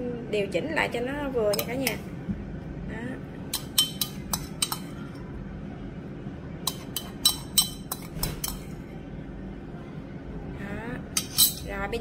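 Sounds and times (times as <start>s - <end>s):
metal spoon clinking on ceramic bowl: 1.5s - 2.0s, 3.5s - 4.9s, 6.6s - 8.7s, 11.2s - 11.7s.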